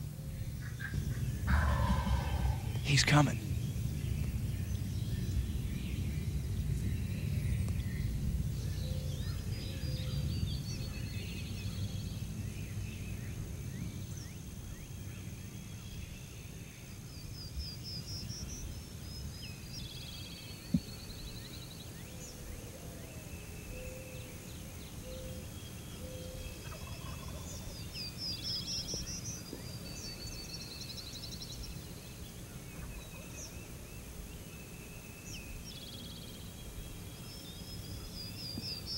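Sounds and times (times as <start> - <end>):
low rumble: 0.0 - 13.6
songbirds singing: 0.0 - 38.9
wild turkey gobbling: 0.6 - 3.0, 26.6 - 27.7.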